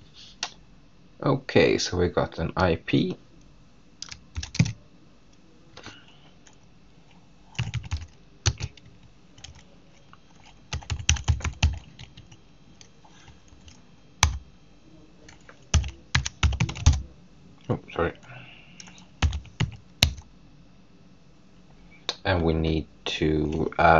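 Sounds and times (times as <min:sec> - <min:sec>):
typing on keyboard: 0:04.0 - 0:04.8, 0:07.6 - 0:09.6, 0:10.3 - 0:12.4, 0:13.6 - 0:14.4, 0:15.3 - 0:17.0, 0:18.8 - 0:20.2.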